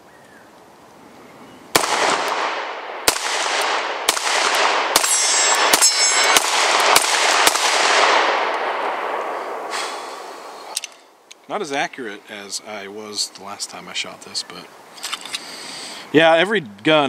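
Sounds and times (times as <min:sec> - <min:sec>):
pistol shots: 0:01.7 - 0:09.3
gunshot echoes: 0:01.7 - 0:10.1
metallic ringing: 0:05.0 - 0:06.5.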